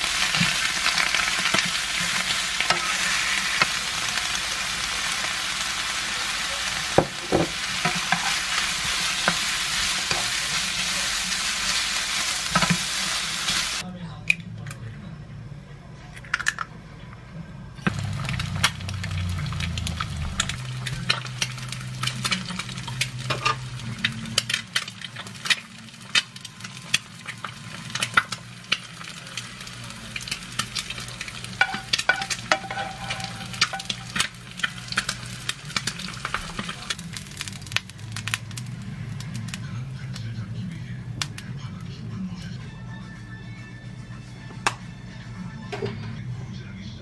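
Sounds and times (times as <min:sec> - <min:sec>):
food sizzling in a frying pan: 0:00.0 - 0:13.8, 0:17.8 - 0:40.6
utensil tapping and scraping pan: 0:31.6 - 0:34.0.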